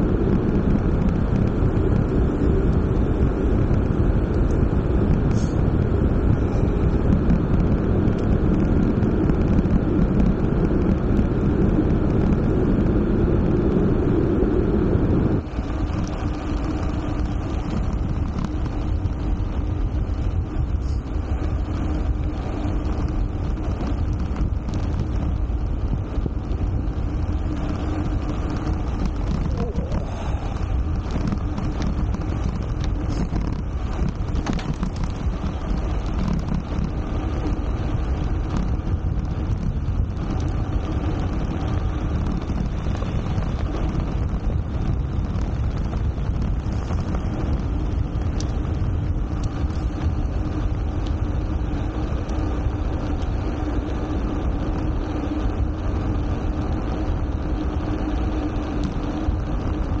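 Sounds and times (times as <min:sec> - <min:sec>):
deep even rumble: 0:00.0 - 1:00.0
wind buffeting microphone: 0:00.0 - 1:00.0.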